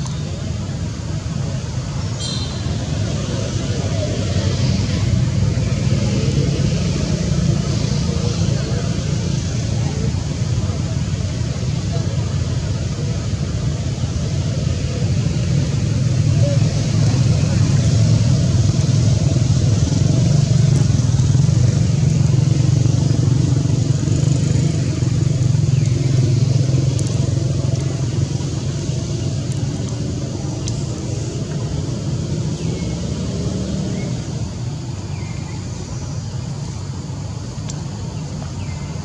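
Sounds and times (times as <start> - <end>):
low steady rumble: 0.0 - 39.0
faint short high chirps: 2.2 - 2.7.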